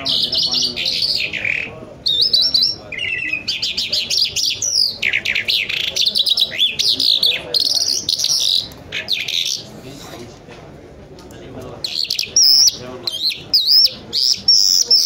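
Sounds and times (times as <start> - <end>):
lark singing trills and whistles: 11.9 - 15.0.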